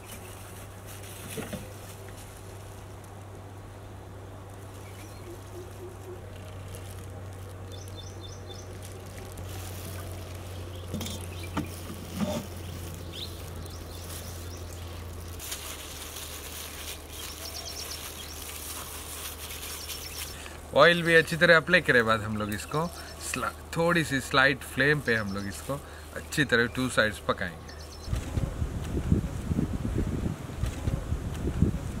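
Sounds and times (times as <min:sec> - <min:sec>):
steady low hum: 0:00.0 - 0:32.0
birds chirping: 0:04.6 - 0:15.4, 0:16.6 - 0:28.5.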